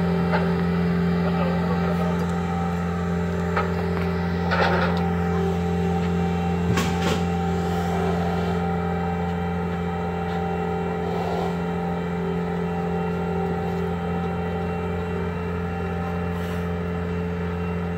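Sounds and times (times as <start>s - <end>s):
loader engine idling: 0.0s - 17.9s.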